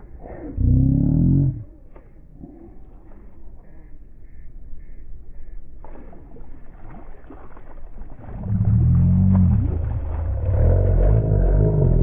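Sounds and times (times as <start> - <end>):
fish splashing at surface: 5.8 - 11.0.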